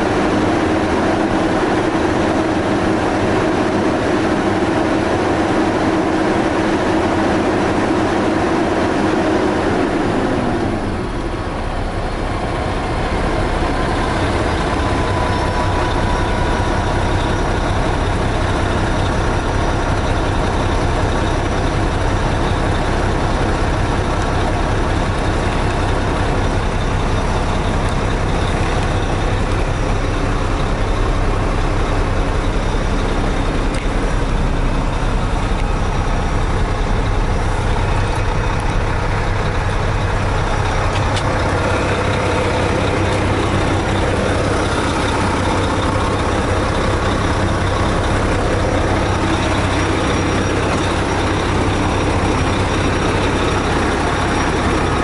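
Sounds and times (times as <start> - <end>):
truck diesel engine idling: 0.0 - 55.0.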